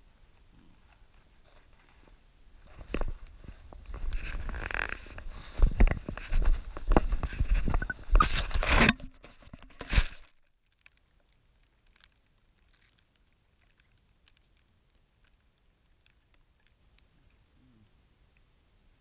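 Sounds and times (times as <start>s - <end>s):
camera handling rustling and knocks: 3.8s - 10.4s
faint clicks: 10.2s - 18.5s.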